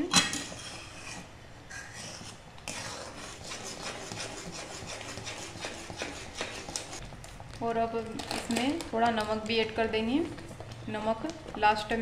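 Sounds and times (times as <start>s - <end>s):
metal ladle scraping a pot: 0.3s - 7.0s.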